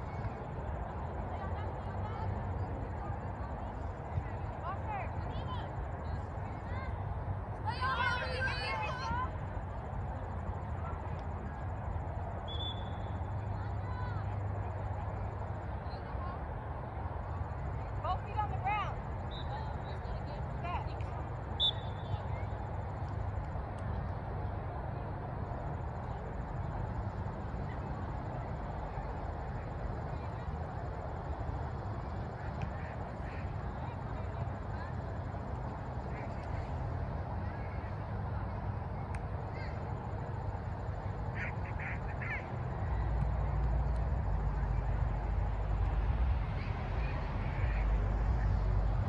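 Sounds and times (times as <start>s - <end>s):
short calls: 21.6s - 22.2s.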